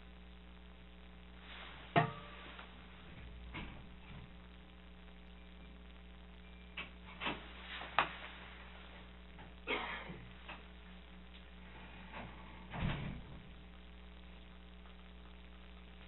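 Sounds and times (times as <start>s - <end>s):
low electrical hum: 0.0s - 16.0s
chair rustle: 7.1s - 9.0s.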